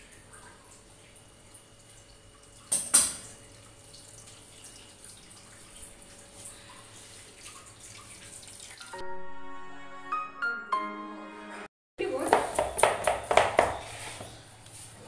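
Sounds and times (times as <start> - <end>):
water dripping and trickling: 0.0 - 9.0.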